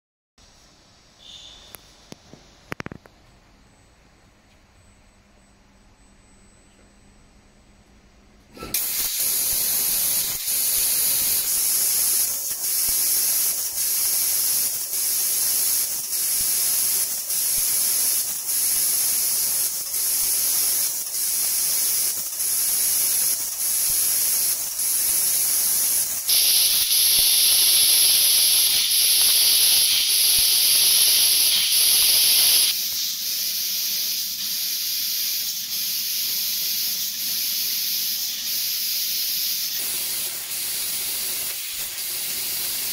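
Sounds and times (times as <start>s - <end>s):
laser cutter gas hissing: 8.6s - 42.9s.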